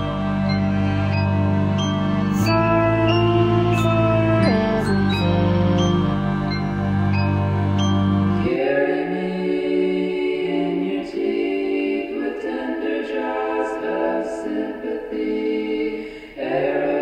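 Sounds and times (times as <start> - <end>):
low sustained tone: 0.0 - 8.5
choir-like harmony singing: 0.0 - 17.0.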